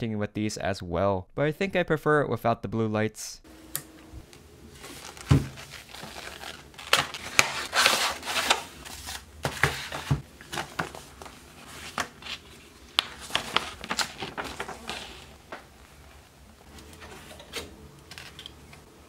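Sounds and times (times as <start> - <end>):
paper rustling and crinkling: 4.7 - 18.4
box thump: 5.2 - 5.7.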